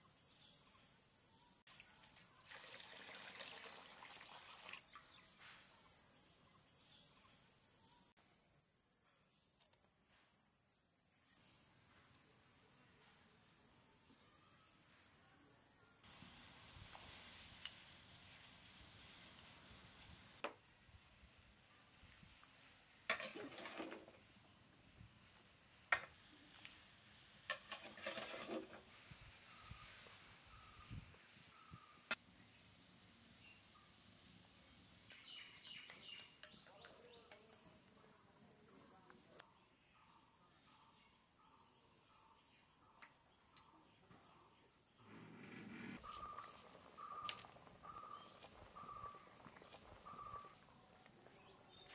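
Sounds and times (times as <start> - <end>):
insects chirping: 0.0 - 51.9.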